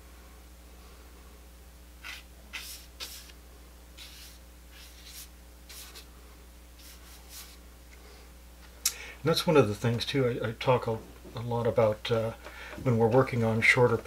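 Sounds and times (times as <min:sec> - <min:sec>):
faint steady hum: 0:00.0 - 0:14.0
brush swishing on paper: 0:02.0 - 0:03.4, 0:04.0 - 0:06.1, 0:06.8 - 0:07.6.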